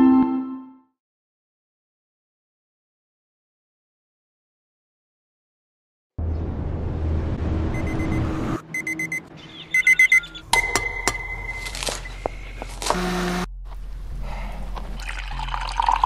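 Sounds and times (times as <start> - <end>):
low rumbling noise: 6.2 - 8.7, 9.4 - 15.6
alarm clock beeping: 7.8 - 13.3.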